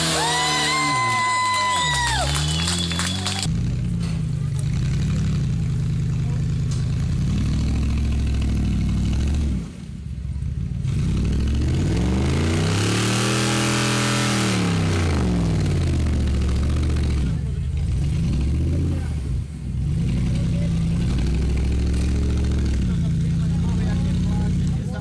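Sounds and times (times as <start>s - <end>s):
off-road vehicle engine revving: 0.0s - 25.0s.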